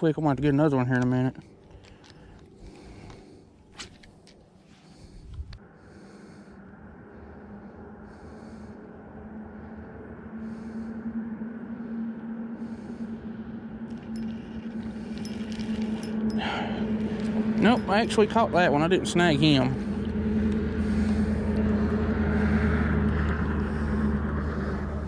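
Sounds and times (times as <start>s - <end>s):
fishing reel gears humming: 13.8s - 25.0s.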